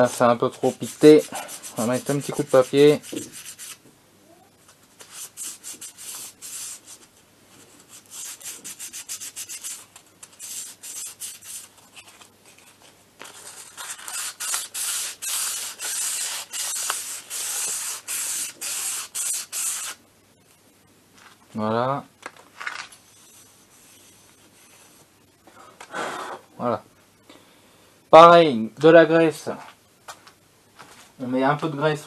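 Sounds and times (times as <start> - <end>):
sandpaper scraping metal: 0.0 - 3.8, 5.0 - 7.0, 7.9 - 12.1, 13.3 - 20.0.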